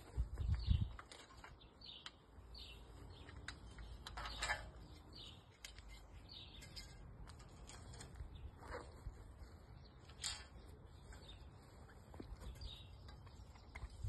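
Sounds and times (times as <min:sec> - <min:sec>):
small birds chirping: 0:00.0 - 0:14.0
aluminium profiles clicking and knocking: 0:03.0 - 0:08.3, 0:12.1 - 0:14.0.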